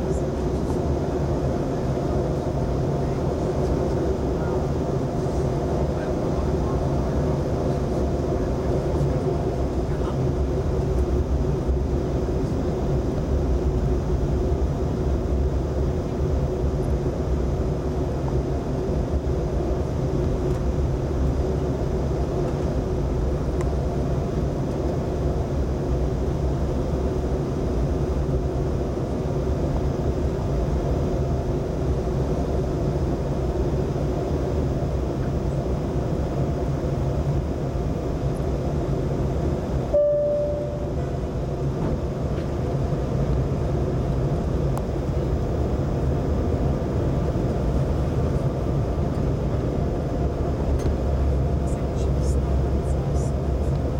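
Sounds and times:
airliner cabin rumble: 0.0s - 53.9s
short single tone: 39.9s - 41.1s.

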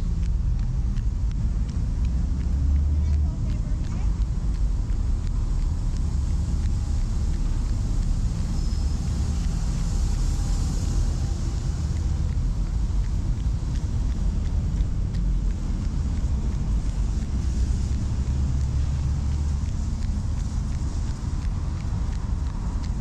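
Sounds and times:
low rumble of cars: 0.0s - 23.0s
even hiss of noise: 4.3s - 23.0s.

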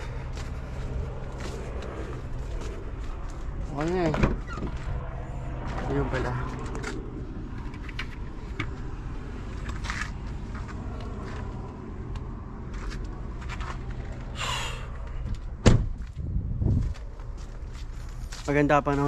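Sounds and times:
steady low hum: 0.0s - 18.5s
car door slamming shut: 15.6s - 16.0s.

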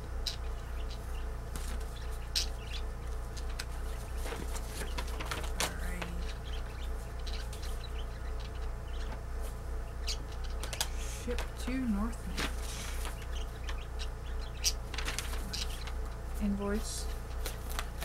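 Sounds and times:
steady low hum: 0.0s - 18.0s
paper rustling and crinkling: 3.5s - 6.2s, 14.9s - 16.0s, 17.1s - 18.0s.

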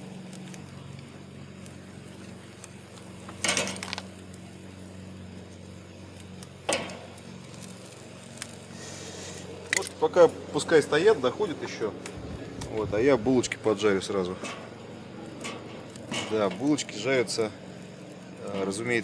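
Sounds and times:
metal tongs clacking on grill grate: 2.6s - 4.0s, 6.2s - 7.0s, 9.6s - 10.0s, 14.3s - 14.7s, 15.3s - 16.8s.

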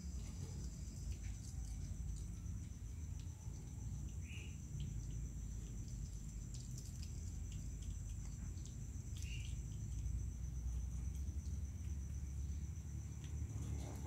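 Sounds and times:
crickets trilling: 0.0s - 14.0s
low steady rumble: 0.0s - 14.0s
animal chewing clicks: 4.8s - 10.1s.

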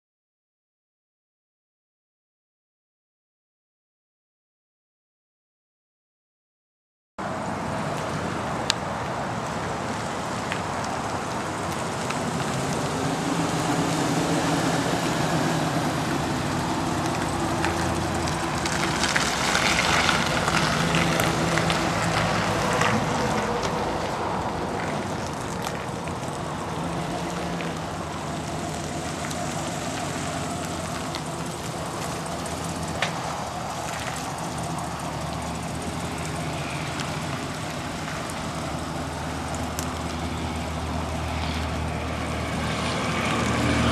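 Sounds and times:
truck engine running: 7.3s - 43.9s.

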